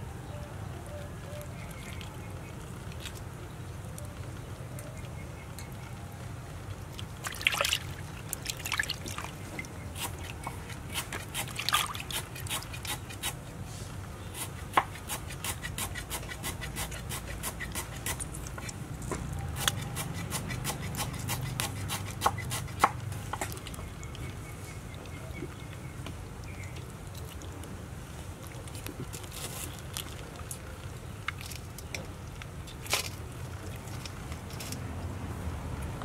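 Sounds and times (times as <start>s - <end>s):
wet clicks and squelches: 1.4s - 3.3s, 23.3s - 27.8s, 28.4s - 34.8s
water splashing in metal basin: 7.2s - 9.7s.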